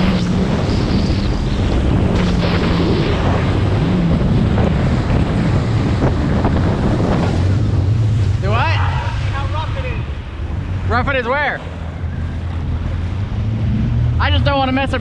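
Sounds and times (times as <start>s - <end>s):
hull slapping water: 0.0s - 10.9s
jet ski engine hum: 0.0s - 15.0s
wind buffeting microphone: 0.0s - 15.0s.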